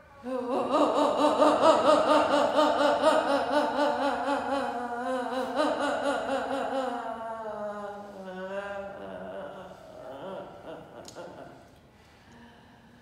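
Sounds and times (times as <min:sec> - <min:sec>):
woman moaning with trembling pitch: 0:00.0 - 0:11.6.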